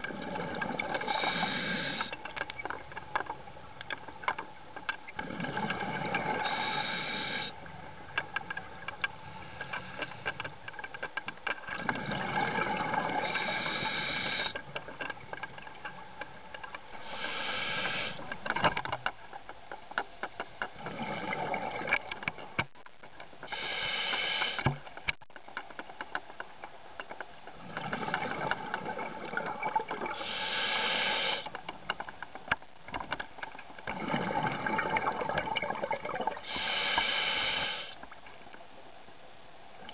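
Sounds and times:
exhaled bubbles clicking: 0.0 - 2.8, 5.1 - 7.3, 11.7 - 15.7, 20.7 - 22.4, 27.5 - 30.3, 33.8 - 36.5
hissing regulator inhalations: 1.0 - 2.2, 6.4 - 7.6, 13.1 - 14.6, 17.0 - 18.2, 23.5 - 24.7, 30.1 - 31.5, 36.4 - 38.0.

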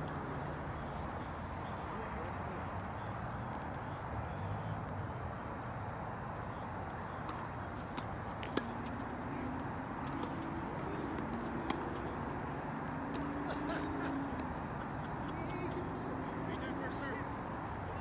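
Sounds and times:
tennis ball impacts: 7.0 - 14.5.

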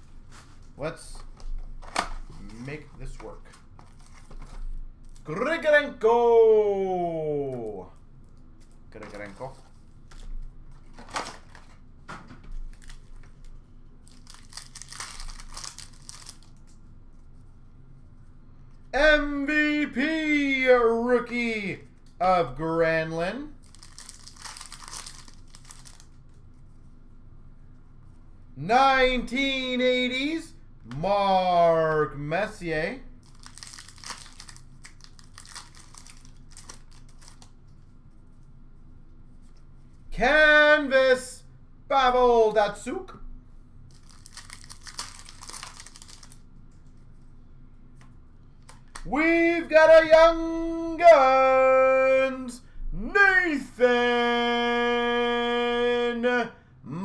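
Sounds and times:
faint room noise: 0.0 - 57.0
card pack wrappers crinkling and tearing: 3.7 - 5.3, 12.6 - 16.8, 23.5 - 26.3, 33.2 - 37.6, 43.9 - 46.5
cards flipped by hand: 33.3 - 37.8, 47.9 - 49.1.

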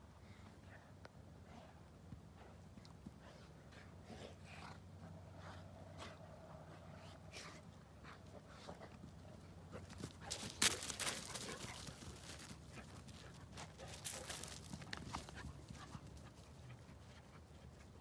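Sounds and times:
dogs scuffling on grass: 9.7 - 17.4.

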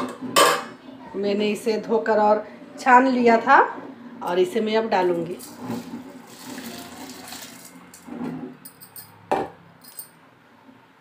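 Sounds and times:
rice pouring into liquid: 5.5 - 7.8.

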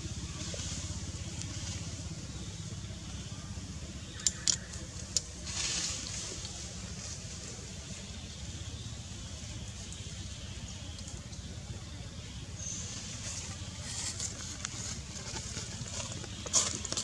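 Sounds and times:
engine idling rumble: 0.0 - 17.0
sharp clicks: 4.2 - 5.3.

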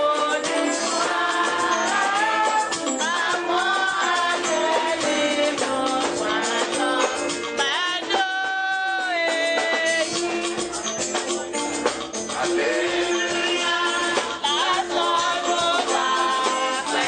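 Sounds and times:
church choir singing: 0.0 - 7.4, 12.3 - 17.0
instrumental and percussion accompaniment: 0.0 - 17.0.

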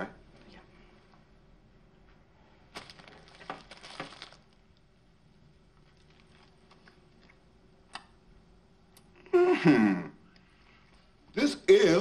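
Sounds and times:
paper wrapper crinkling: 2.7 - 4.7, 5.8 - 7.3.

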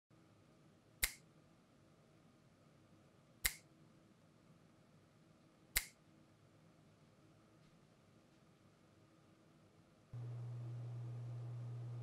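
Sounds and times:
sharp snap-like clicks: 1.0 - 1.2, 3.4 - 3.7, 5.8 - 6.0.

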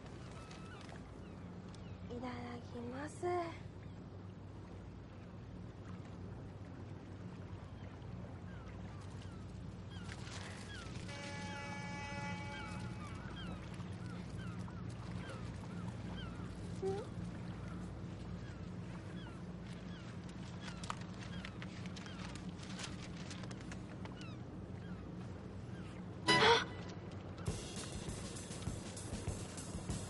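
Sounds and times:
steady low hum: 0.0 - 30.0
short bird calls: 10.6 - 17.8, 26.3 - 26.9
held multi-pitched tone: 26.3 - 26.8.

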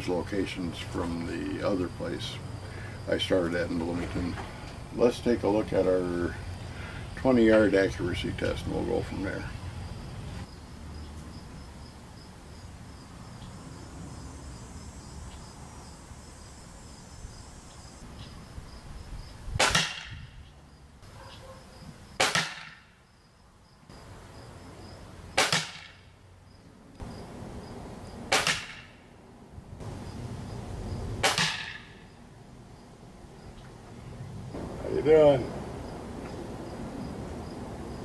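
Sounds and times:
air rifle shots: 19.6 - 20.2, 22.2 - 22.9, 25.4 - 26.0, 28.3 - 29.0, 31.2 - 32.0.

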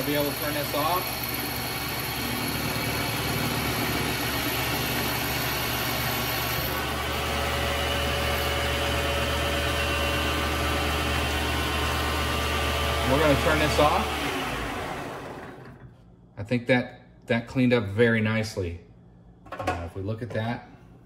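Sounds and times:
lathe motor humming and whining: 0.0 - 15.8.

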